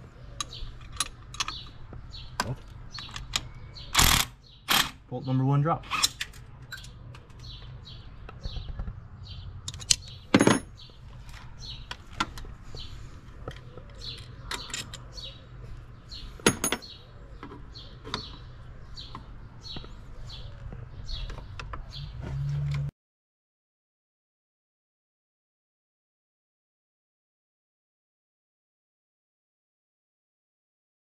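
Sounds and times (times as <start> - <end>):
bird chirping: 0.0 - 22.9
metal tools clinking: 14.0 - 15.0, 16.4 - 17.0.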